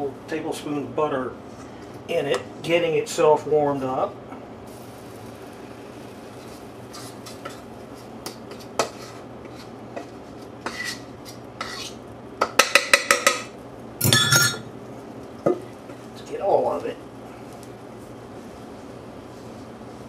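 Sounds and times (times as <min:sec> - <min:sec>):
metal bowl scraping: 0:06.4 - 0:12.0.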